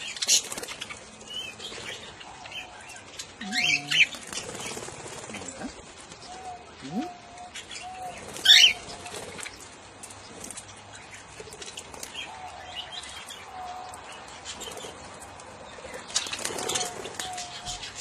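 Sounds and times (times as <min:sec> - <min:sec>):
wings fluttering: 0:00.0 - 0:02.2, 0:03.1 - 0:07.2, 0:08.1 - 0:12.3, 0:14.4 - 0:18.0.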